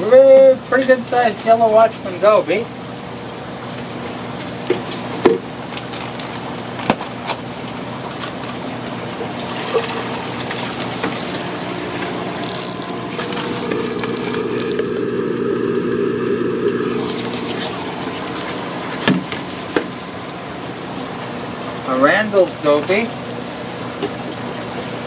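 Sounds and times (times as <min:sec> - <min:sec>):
aquarium pump hum: 0:00.0 - 0:25.0
water pouring into plastic cup: 0:08.1 - 0:20.4.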